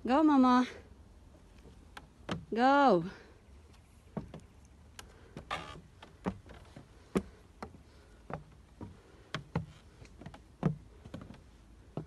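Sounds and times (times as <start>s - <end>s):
footsteps climbing stairs: 5.2s - 12.0s.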